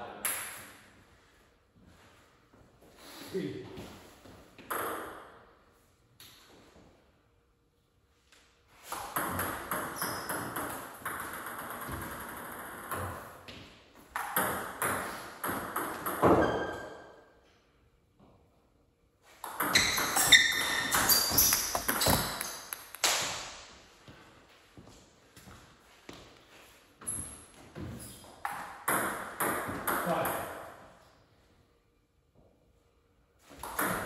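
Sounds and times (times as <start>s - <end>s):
table tennis ball clicking: 21.4s - 23.1s.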